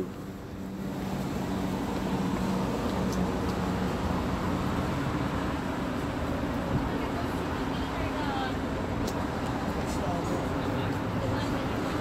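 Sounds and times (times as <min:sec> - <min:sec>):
road traffic hum: 0:00.0 - 0:12.0.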